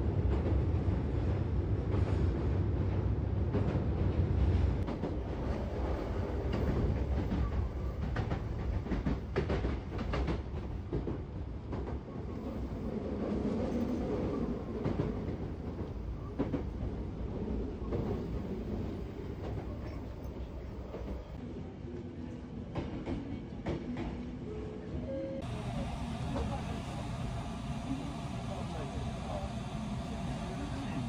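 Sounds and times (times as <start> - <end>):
train running rumble: 0.0 - 21.4, 25.4 - 31.0.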